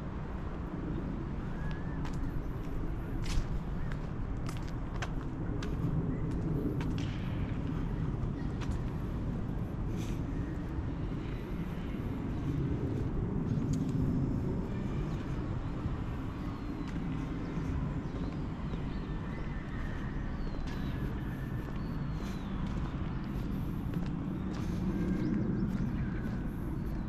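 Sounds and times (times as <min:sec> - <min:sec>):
road traffic rumble: 0:00.0 - 0:27.0.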